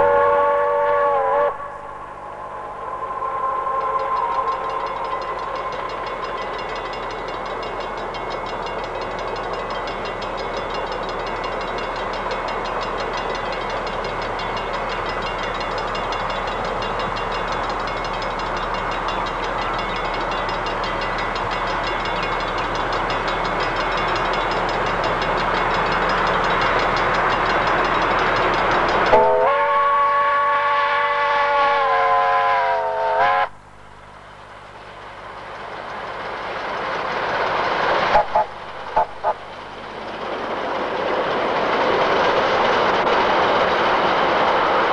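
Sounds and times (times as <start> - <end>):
steam whistle blast: 0.0 - 5.6, 29.1 - 33.6
steam locomotive running: 0.0 - 44.9.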